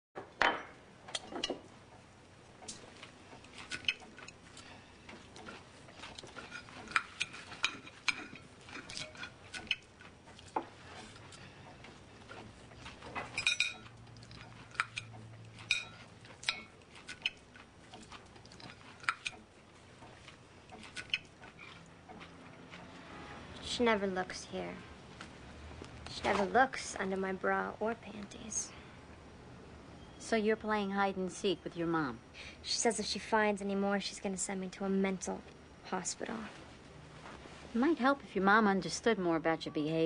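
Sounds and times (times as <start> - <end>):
cutlery clinking on plates: 13.2 - 13.9, 14.7 - 17.4.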